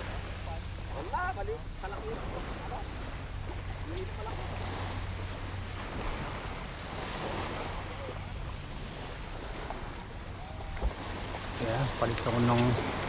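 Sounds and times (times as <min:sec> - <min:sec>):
waves breaking on shore: 0:00.0 - 0:13.0.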